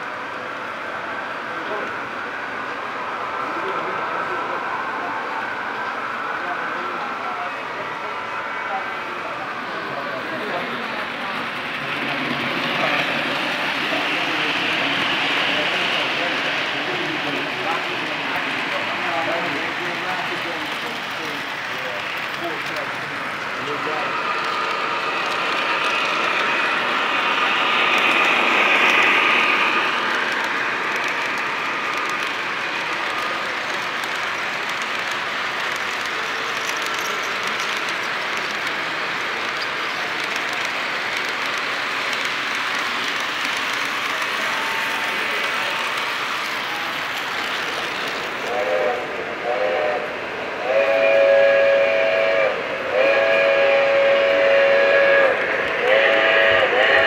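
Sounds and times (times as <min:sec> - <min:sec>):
model train wheels rattling: 0:10.2 - 0:48.5
model train whistle blasts: 0:50.6 - 0:57.0.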